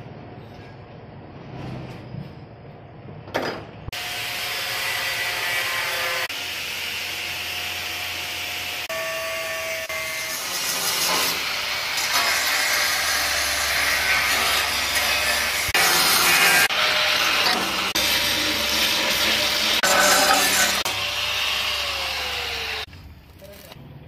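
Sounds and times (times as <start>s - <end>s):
power tool grinding metal: 3.9s - 22.9s.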